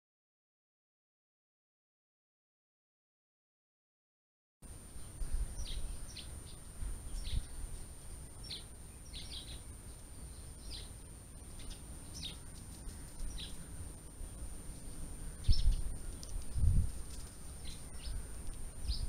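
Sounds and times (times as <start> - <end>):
songbird chirping: 4.6 - 19.0.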